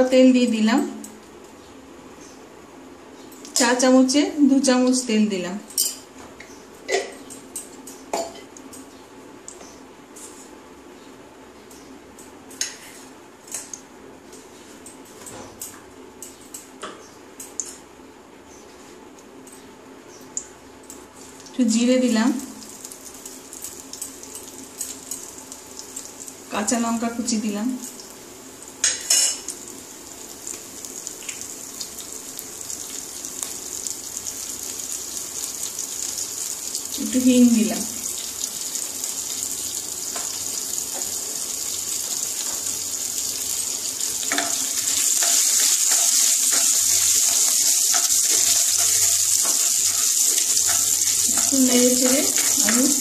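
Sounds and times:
hot oil hissing and crackling: 0:22.5 - 0:27.0, 0:27.8 - 0:53.0
oil crackling: 0:38.2 - 0:53.0.

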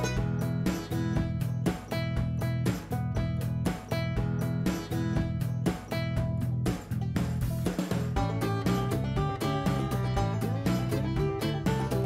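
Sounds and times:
strummed guitar music: 0:00.0 - 0:12.0.

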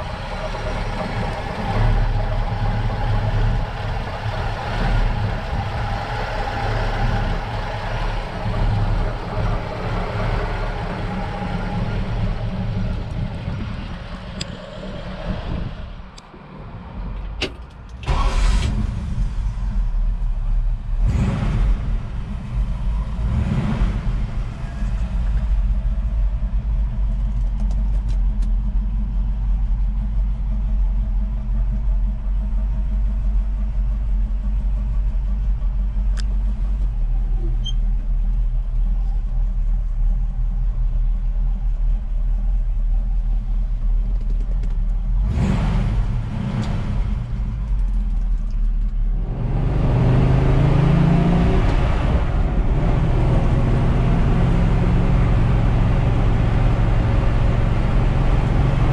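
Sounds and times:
engine revving: 0:00.0 - 0:15.8, 0:20.9 - 0:25.4, 0:45.2 - 0:47.6, 0:49.1 - 0:58.9
engine idling: 0:00.0 - 0:16.4, 0:17.0 - 0:49.4
engine starting: 0:18.0 - 0:19.4.

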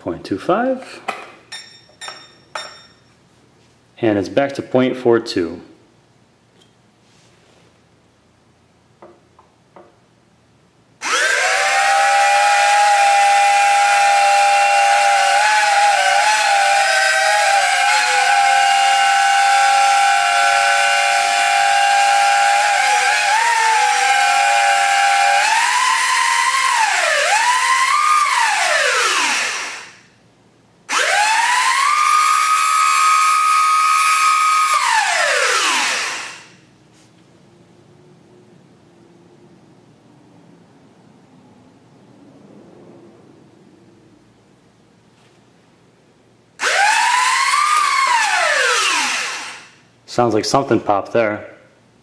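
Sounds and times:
drone motors whining: 0:11.0 - 0:30.0, 0:30.9 - 0:36.5, 0:46.6 - 0:49.7.

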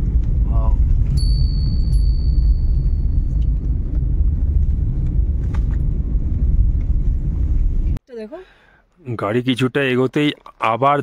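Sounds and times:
car engine and tyres rumbling: 0:00.0 - 0:08.0.

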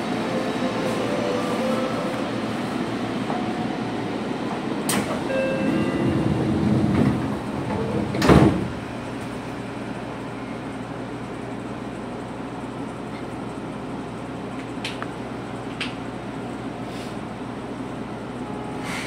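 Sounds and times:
train doors sliding: 0:00.0 - 0:09.4, 0:18.8 - 0:19.0
low train hum: 0:00.0 - 0:19.0.

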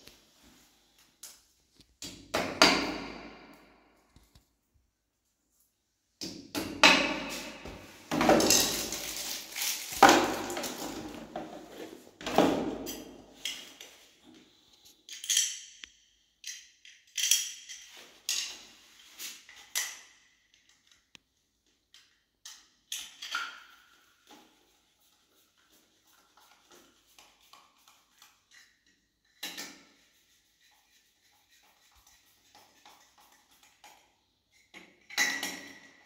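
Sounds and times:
light clicks and clinks of parts: 0:14.9 - 0:18.6.

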